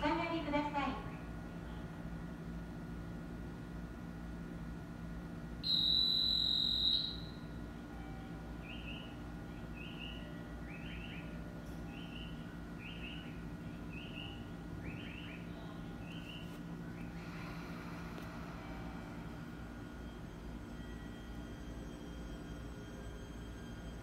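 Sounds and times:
steady low hum: 0:00.0 - 0:24.0
shrill whistle: 0:05.6 - 0:07.5, 0:08.6 - 0:11.3, 0:11.9 - 0:17.1.

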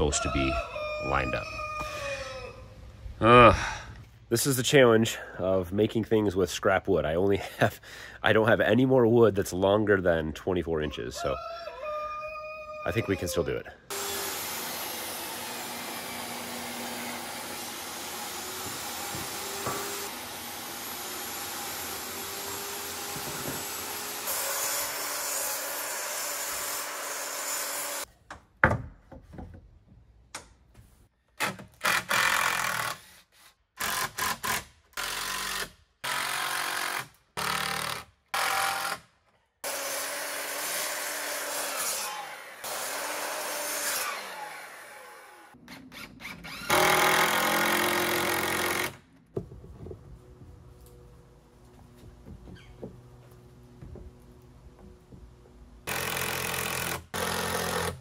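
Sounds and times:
miter saw cutting wood: 0:13.9 - 0:28.1, 0:39.6 - 0:49.0, 0:55.8 - 0:58.0
table saw cutting wood: 0:13.9 - 0:28.1, 0:39.6 - 0:49.0
power drill driving screws: 0:45.7 - 0:49.0, 0:55.9 - 0:58.0.

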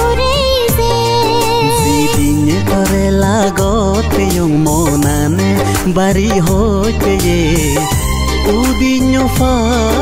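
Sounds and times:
pop song with vibrato singing: 0:00.0 - 0:10.0.

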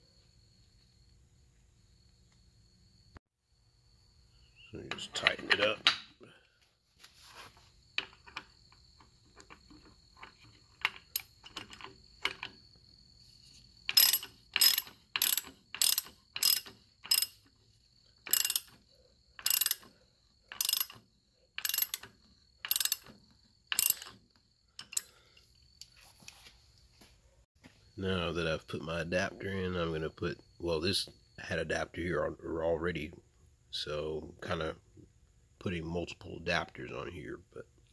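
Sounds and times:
socket ratchet clicking: 0:13.9 - 0:17.4, 0:18.3 - 0:18.8, 0:19.4 - 0:19.9, 0:20.5 - 0:21.0, 0:21.6 - 0:24.2, 0:24.8 - 0:25.1.

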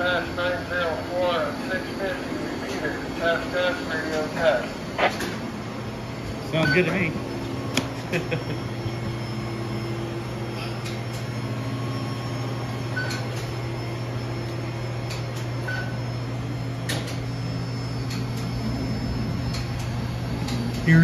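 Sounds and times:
machinery and fans humming: 0:00.0 - 0:21.0
faint high beeps: 0:06.5 - 0:07.1.

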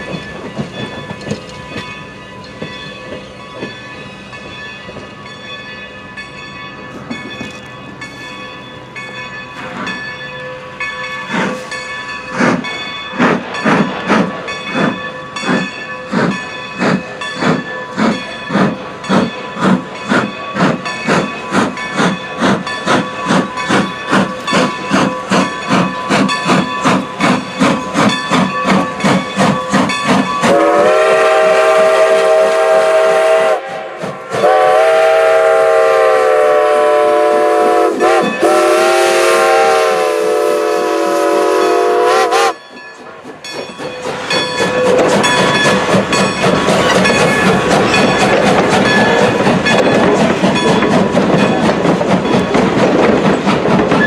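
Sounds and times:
steam locomotive chuffing: 0:00.0 - 0:54.0
train hiss and rumble: 0:00.0 - 0:54.0.

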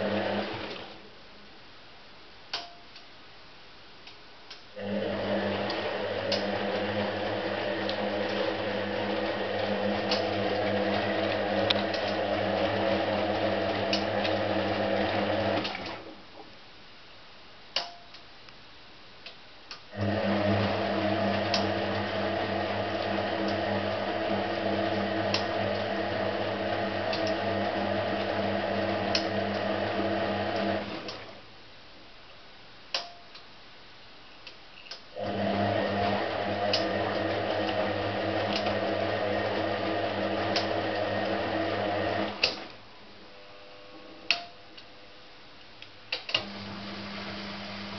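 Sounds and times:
washing machine motor humming: 0:00.0 - 0:01.0, 0:04.8 - 0:16.1, 0:19.9 - 0:31.3, 0:35.2 - 0:44.5, 0:46.2 - 0:47.9.

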